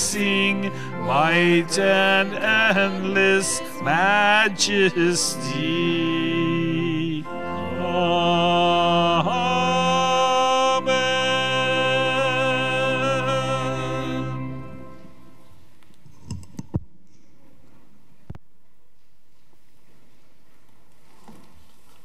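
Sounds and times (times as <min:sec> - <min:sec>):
organ and voices singing hymn: 0:00.0 - 0:15.4.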